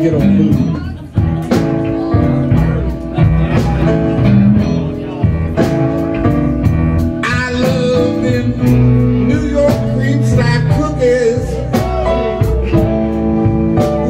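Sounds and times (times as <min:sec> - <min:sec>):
man singing: 0:00.0 - 0:01.2, 0:07.0 - 0:14.0
drums and cymbals: 0:00.0 - 0:14.0
electric guitar with bent notes: 0:00.0 - 0:14.0.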